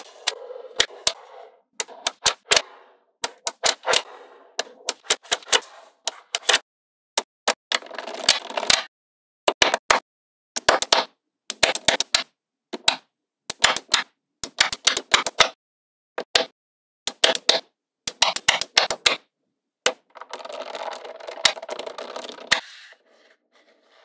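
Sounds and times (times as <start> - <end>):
slab scraping on paper: 0.0 - 6.6, 21.8 - 24.0
magnetic balls clicking together: 19.9 - 22.6.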